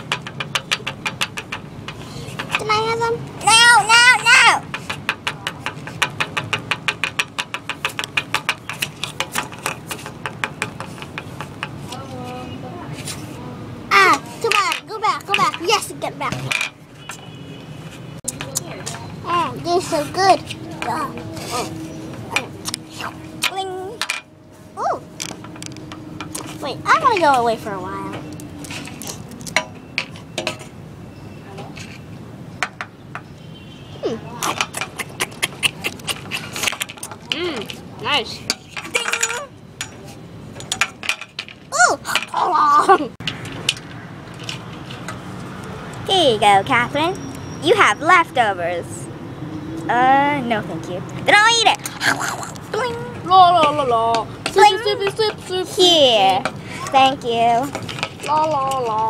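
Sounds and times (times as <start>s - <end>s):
plastic toy tapping plate: 0.0s - 2.8s, 4.6s - 11.8s
plastic toys clicking and tapping: 0.0s - 12.1s, 13.9s - 16.8s, 18.2s - 22.8s, 23.4s - 24.3s, 25.1s - 30.7s, 34.4s - 42.4s, 43.2s - 47.4s, 51.1s - 59.0s.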